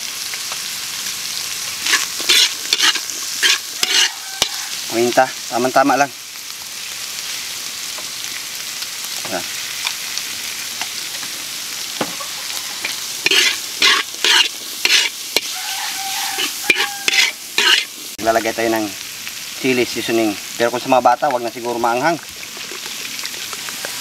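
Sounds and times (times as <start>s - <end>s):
meat and carrots sizzling in wok: 0.0s - 24.0s
metal spatula scraping wok: 1.8s - 4.9s, 12.2s - 18.0s.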